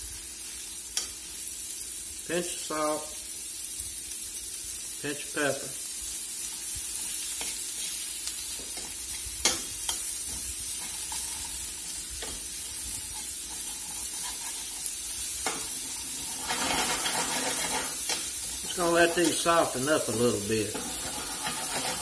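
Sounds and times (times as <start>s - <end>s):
onions sizzling in pan: 0.0s - 22.0s
metal spatula scraping pan: 10.7s - 12.4s, 13.0s - 22.0s.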